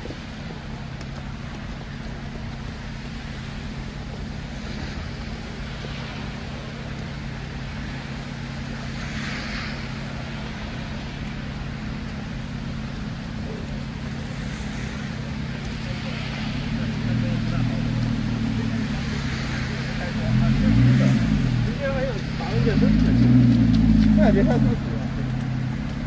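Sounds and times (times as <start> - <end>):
traffic rumble: 0.0 - 26.0
passing vehicle hiss: 8.7 - 11.2.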